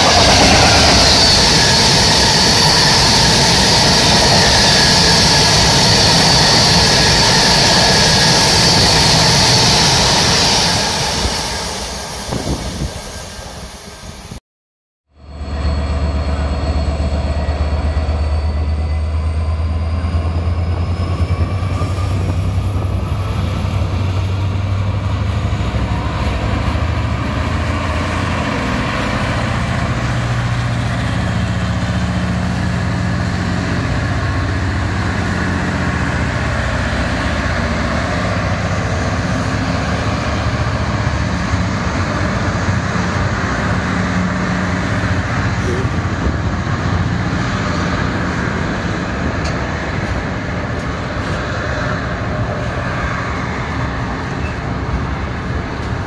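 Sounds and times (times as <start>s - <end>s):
diesel locomotive engine: 0.0s - 14.4s, 15.1s - 56.0s.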